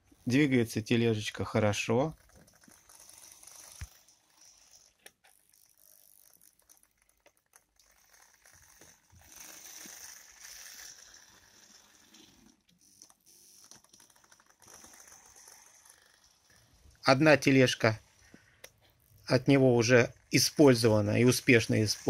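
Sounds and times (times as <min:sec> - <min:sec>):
model locomotive motor running: 0:09.2 - 0:12.2.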